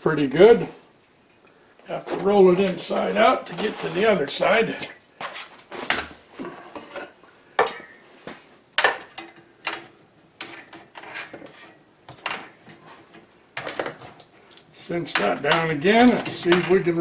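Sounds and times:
metal rubbing and scraping: 2.0s - 4.6s, 10.5s - 11.8s.

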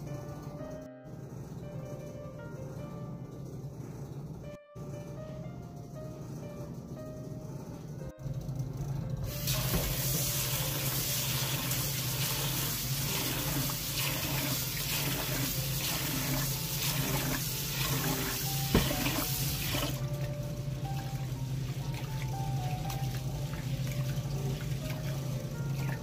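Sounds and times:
tap water running into pot: 9.3s - 26.0s.

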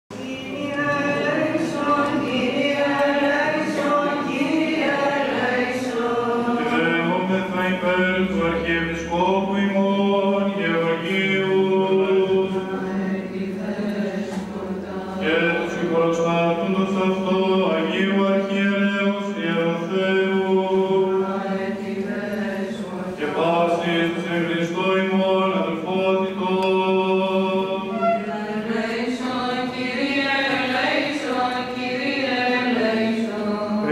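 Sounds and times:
held vocal drone: 0.1s - 33.9s
men singing chant: 0.3s - 14.2s, 15.0s - 28.0s.

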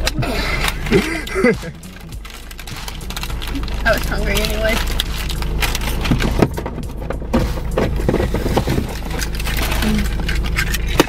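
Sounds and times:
plastic packet crinkling: 0.0s - 6.5s, 8.8s - 11.0s
steady low hum: 0.0s - 11.0s.

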